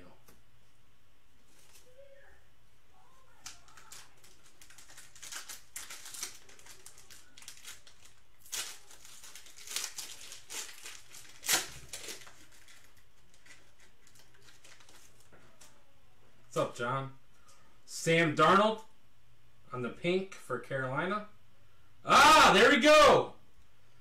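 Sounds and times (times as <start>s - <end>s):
foil wrapper crinkling: 3.3s - 15.7s.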